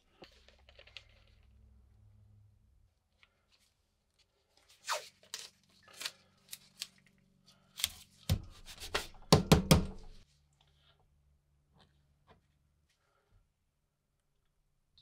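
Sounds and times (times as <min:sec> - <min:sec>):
tape ripping off roll: 0:04.8 - 0:06.2.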